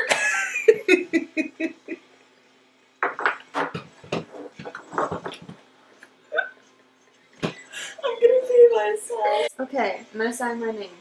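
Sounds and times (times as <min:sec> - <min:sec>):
girls laughing: 0:00.0 - 0:02.1.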